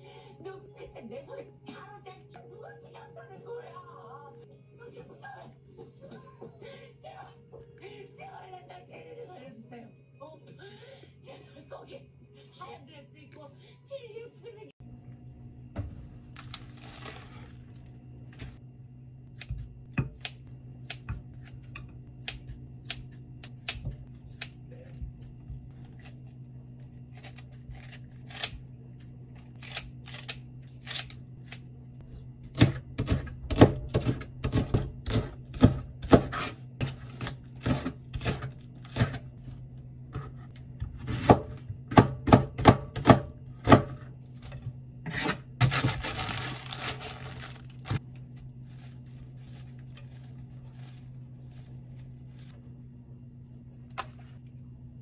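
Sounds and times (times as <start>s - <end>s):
kitchen scissors snipping: 19.3s - 24.8s, 27.1s - 28.6s, 29.5s - 31.6s
knife chopping on cutting board: 32.5s - 39.2s, 40.2s - 44.1s.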